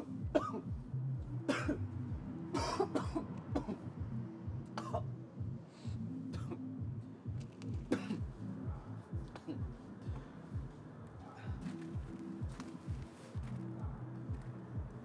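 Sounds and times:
low steady hum: 0.0s - 15.0s
person coughing: 0.3s - 0.7s, 1.5s - 1.8s, 2.5s - 3.8s, 4.8s - 5.1s, 6.3s - 6.6s, 7.9s - 8.3s, 9.3s - 9.8s.

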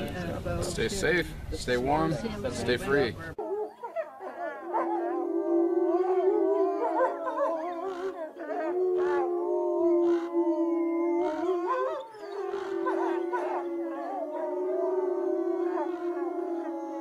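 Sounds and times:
wolves howling: 3.4s - 17.0s.

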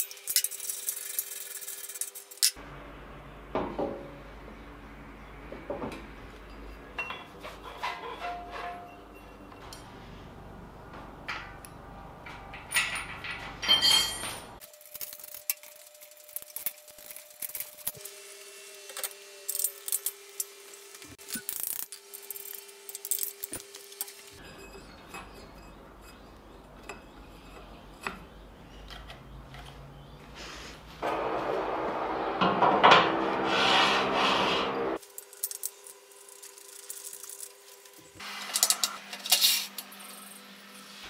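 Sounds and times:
metal parts clinking: 0.0s - 2.6s, 12.5s - 18.0s.

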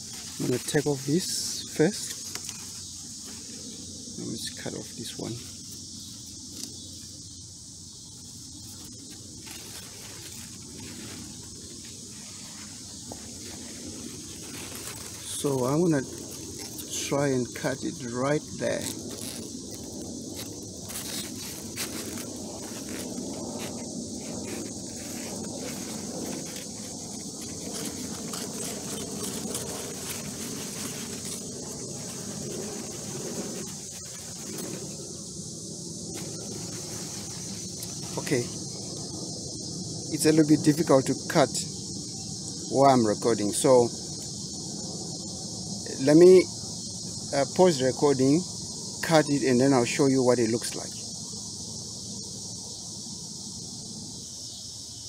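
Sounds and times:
rustle of handling and foliage: 0.0s - 41.8s
insect chorus: 0.0s - 55.0s.

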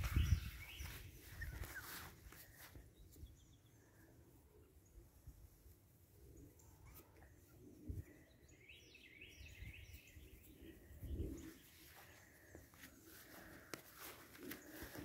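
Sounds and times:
faint high chirping: 0.0s - 3.7s.

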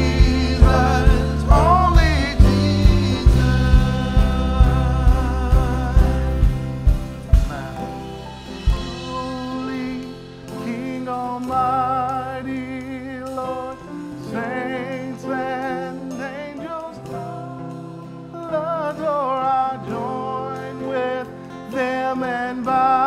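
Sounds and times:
sustained instrumental chords: 0.0s - 18.3s
person singing with vibrato: 0.0s - 23.0s.

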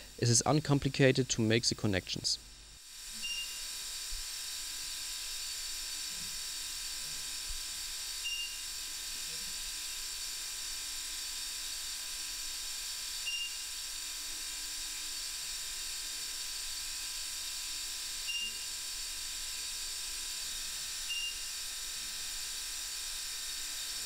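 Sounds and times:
steady high hiss: 0.0s - 3.8s
short high beep: 3.2s - 3.6s.

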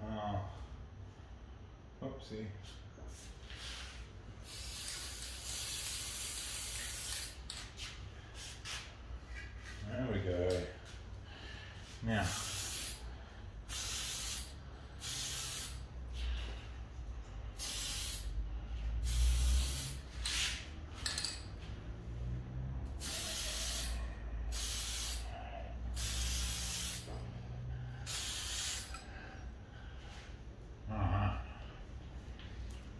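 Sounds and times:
spray can hissing: 4.4s - 7.6s, 12.2s - 13.0s, 13.7s - 15.8s, 17.6s - 18.3s, 19.0s - 20.8s, 23.0s - 25.3s, 25.9s - 27.1s, 28.1s - 29.0s.

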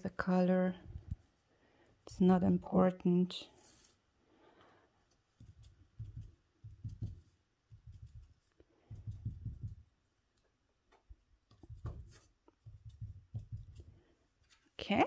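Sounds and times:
sponge dabbing on paper: 3.6s - 4.0s, 5.0s - 10.1s, 11.4s - 14.6s.

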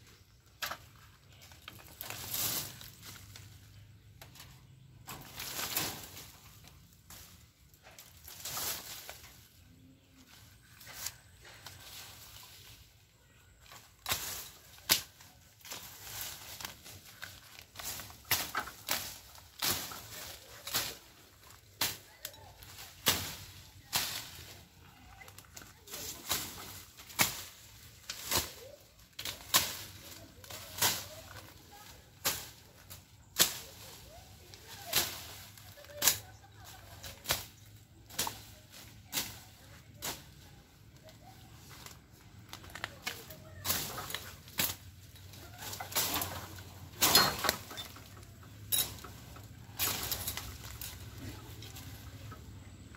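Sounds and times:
swishing strokes through weeds: 14.1s - 42.2s.

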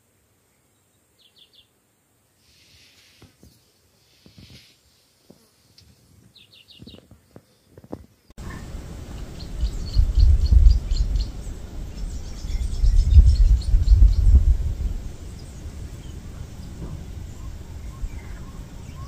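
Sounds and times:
small birds chirping: 0.4s - 4.8s, 5.7s - 19.0s
loud low rumble: 8.4s - 19.0s.

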